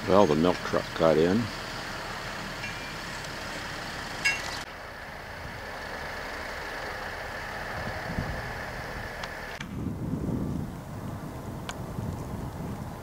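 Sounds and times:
truck diesel engine running: 0.0s - 9.6s
high-pitched tone: 4.2s - 4.6s.

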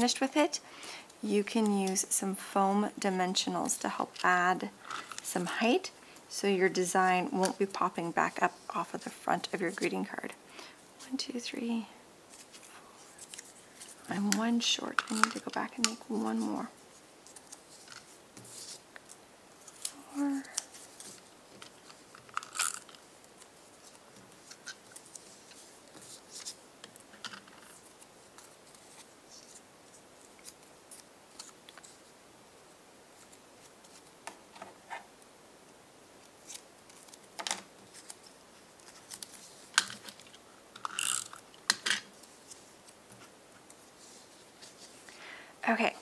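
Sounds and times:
paper rustling: 12.3s - 32.1s, 36.2s - 40.4s.

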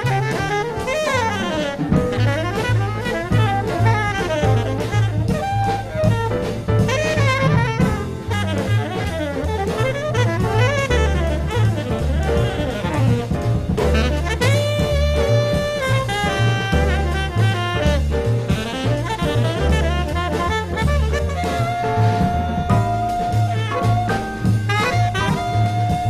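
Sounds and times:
jazz music: 0.0s - 26.0s
saxophone melody: 0.0s - 26.0s.

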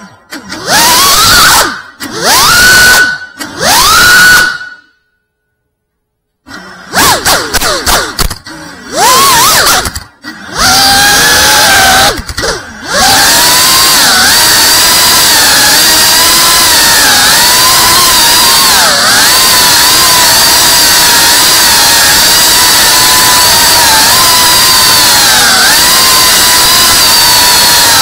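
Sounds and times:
drone motors whining: 0.0s - 5.1s, 6.3s - 28.0s.

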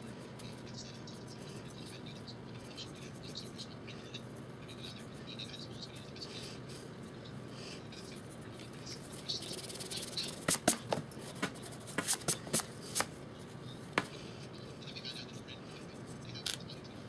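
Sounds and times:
hand rubbing across paper: 9.0s - 13.1s.

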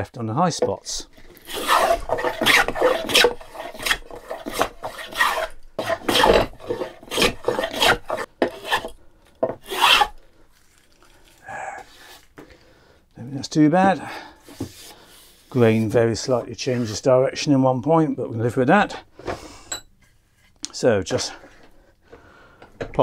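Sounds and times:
hand plane shaving wood: 1.3s - 9.0s, 9.6s - 10.2s.

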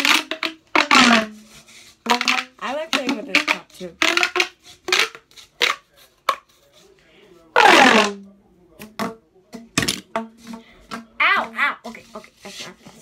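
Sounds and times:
plastic pop tube popping: 0.0s - 6.5s, 7.6s - 8.2s, 8.8s - 11.6s.

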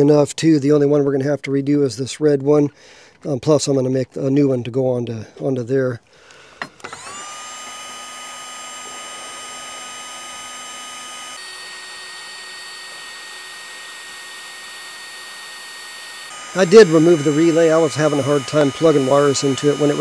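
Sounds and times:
heat gun fan whining: 6.2s - 20.0s.

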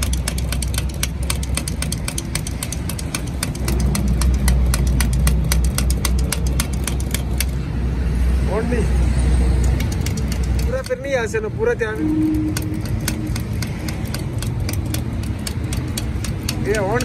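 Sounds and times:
rapid sharp ticking: 0.0s - 7.7s, 9.4s - 17.0s
low engine drone: 11.4s - 16.0s.

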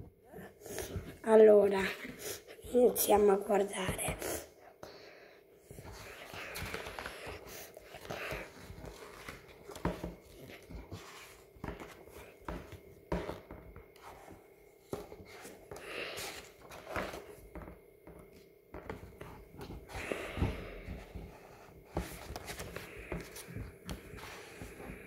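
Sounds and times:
paper pages rustling: 5.8s - 13.4s, 14.0s - 17.7s, 18.8s - 25.0s.

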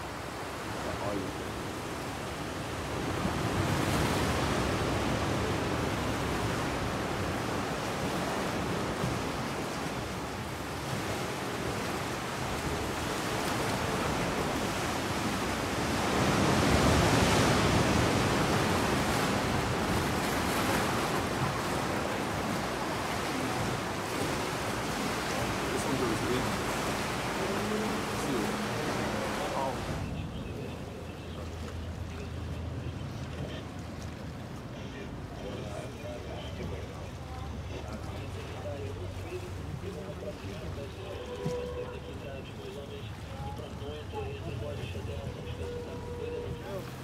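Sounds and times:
sea water sloshing in a cave: 0.0s - 30.2s.

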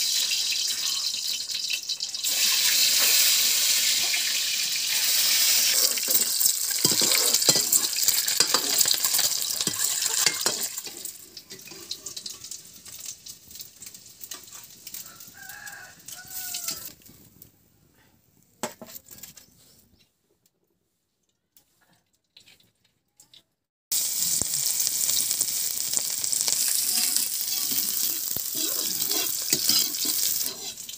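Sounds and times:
eggs sizzling in hot oil: 0.0s - 17.0s, 23.9s - 30.9s
ladle scraping and clinking on pan: 5.5s - 12.5s, 26.7s - 30.9s.

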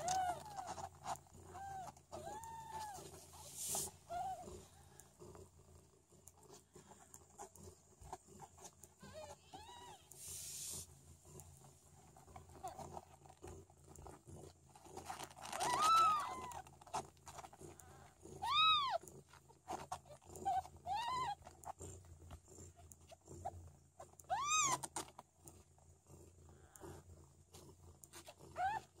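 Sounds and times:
kittens mewing: 0.0s - 5.2s, 15.4s - 17.0s, 17.7s - 19.1s, 24.2s - 25.1s.

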